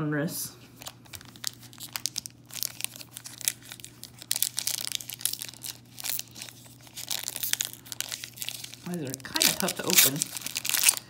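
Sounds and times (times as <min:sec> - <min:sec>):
foil pack tearing and crinkling: 0:00.8 - 0:11.0.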